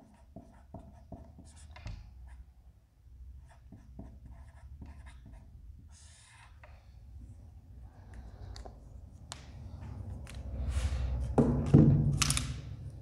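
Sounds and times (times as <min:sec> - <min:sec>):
marker scratching on whiteboard: 0:00.0 - 0:02.4, 0:03.4 - 0:06.7.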